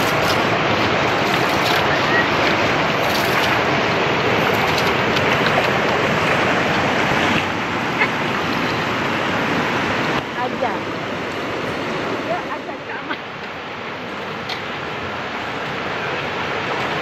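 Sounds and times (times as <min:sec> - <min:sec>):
water sloshing in a pot: 0:00.0 - 0:08.9
water pouring into stream: 0:00.0 - 0:10.0
river rushing over rocks: 0:00.0 - 0:17.0.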